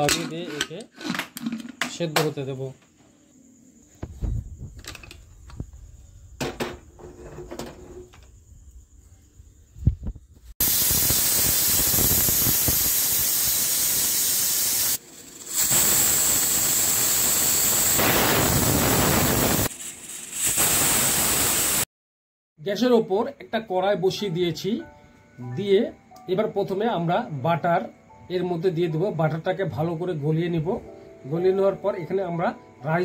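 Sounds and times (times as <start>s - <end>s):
pressure cooker steam hiss: 10.6s - 21.9s.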